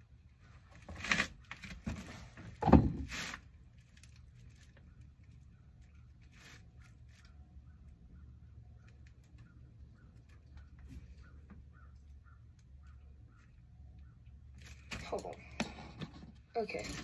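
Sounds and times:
rustling and scraping: 0.4s - 7.5s, 14.5s - 17.0s
thump: 2.6s - 3.1s.

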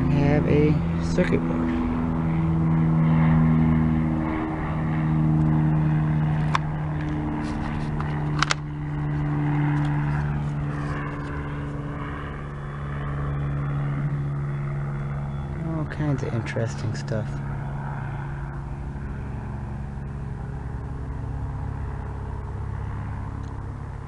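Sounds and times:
engine drone: 0.0s - 24.0s
sharp clicks: 8.0s - 8.6s.

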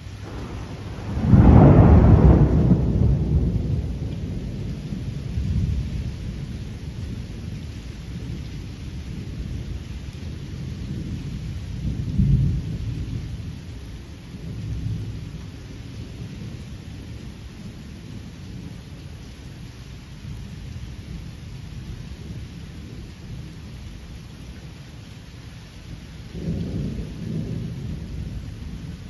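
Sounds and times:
thunder rumbling: 0.0s - 18.8s, 25.8s - 29.0s.

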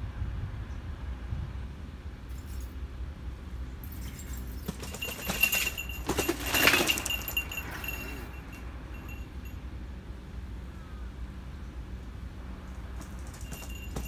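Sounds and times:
bike rattling down stairs: 4.0s - 9.3s, 12.9s - 14.0s
high ringing tone: 4.8s - 9.7s.

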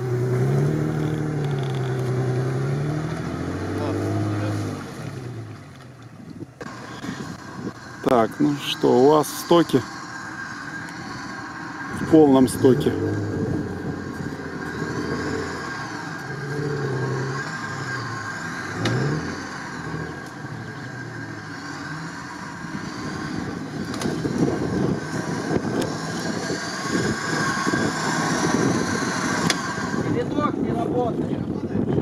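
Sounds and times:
jeep engine revving: 0.0s - 32.0s
high whine: 6.6s - 30.8s.

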